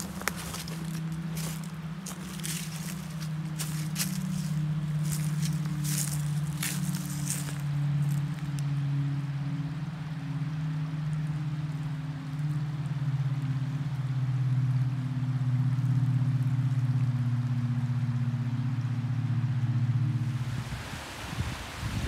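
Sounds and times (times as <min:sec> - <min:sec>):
creek rapids rushing: 0:00.0 - 0:13.8, 0:20.1 - 0:22.0
low engine drone: 0:00.0 - 0:21.2.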